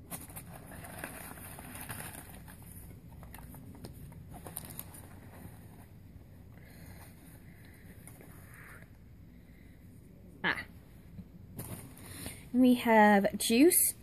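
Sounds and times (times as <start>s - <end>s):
paper packaging rustling: 0.0s - 6.1s.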